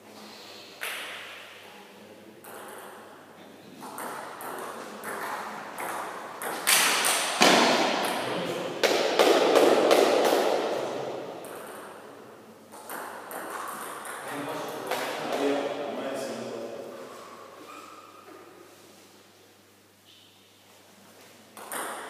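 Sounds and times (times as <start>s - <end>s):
ping-pong ball clicks: 2.4s - 3.1s, 11.4s - 12.0s, 12.7s - 14.2s, 21.6s - 22.0s.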